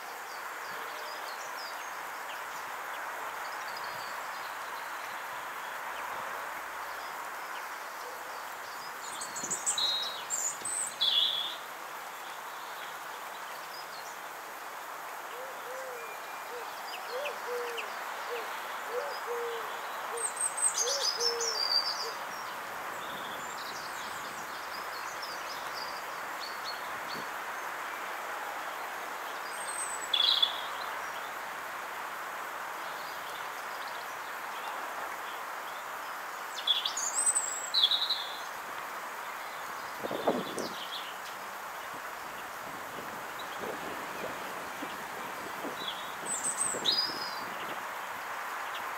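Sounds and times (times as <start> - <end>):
steady background hiss: 0.0 - 48.9
pigeon cooing: 17.1 - 17.8
small birds chirping: 39.2 - 48.0.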